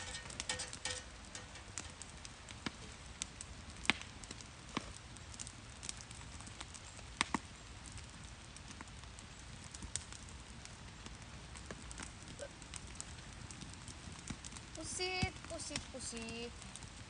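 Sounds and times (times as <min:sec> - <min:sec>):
low steady rumble: 0:00.0 - 0:06.8
campfire crackling and popping: 0:00.0 - 0:17.0
sharp fire snaps: 0:00.0 - 0:17.0.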